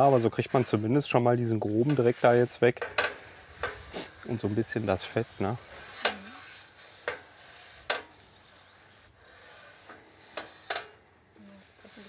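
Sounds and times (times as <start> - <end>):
paper towel wiping grill plate: 0.0 - 11.0.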